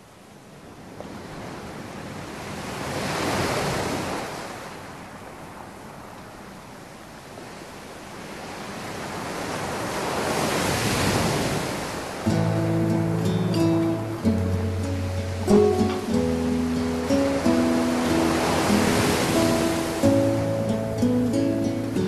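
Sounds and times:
rushing hiss-like noise: 12.2s - 22.0s.

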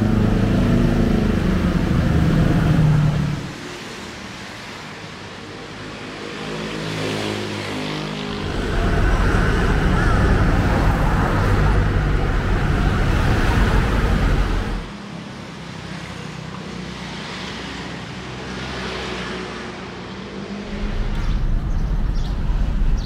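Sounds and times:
steady traffic hum: 0.0s - 23.0s
cars passing close by: 6.8s - 14.9s.

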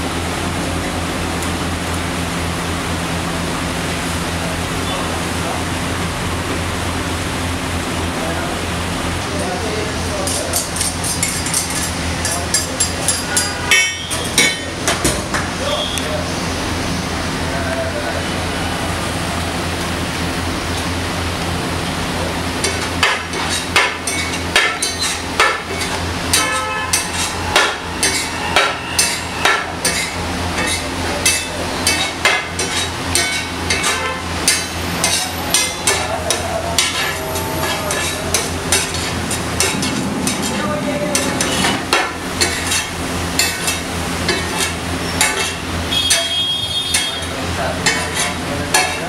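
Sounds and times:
frying sizzle: 0.0s - 49.0s
metal spatula scraping griddle: 10.2s - 14.5s, 22.6s - 49.0s.

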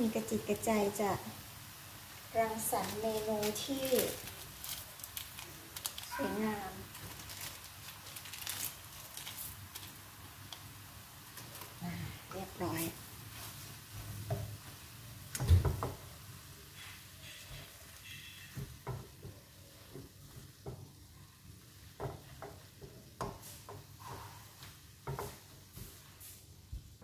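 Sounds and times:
food sizzling in a wok: 0.0s - 27.0s
spatula scraping and tapping: 16.8s - 20.9s, 22.0s - 26.0s.

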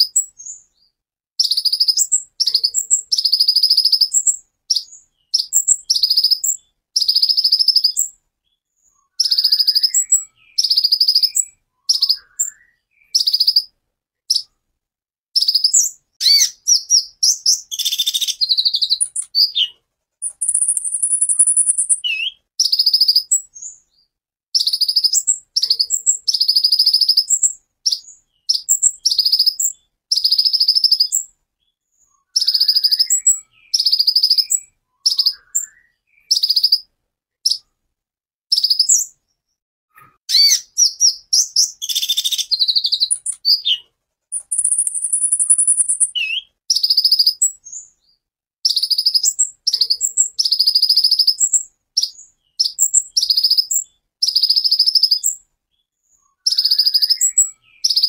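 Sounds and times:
sunbird high rapid song: 15.4s - 23.8s, 40.3s - 43.8s, 44.4s - 47.9s.

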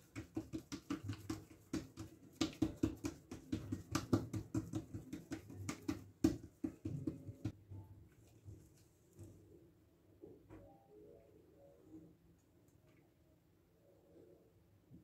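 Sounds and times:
hands slapping dough: 0.0s - 7.6s.

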